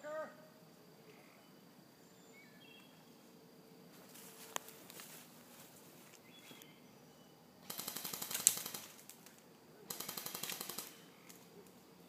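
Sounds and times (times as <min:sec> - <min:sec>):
airsoft gun bursts: 0:07.6 - 0:09.1, 0:09.9 - 0:11.1.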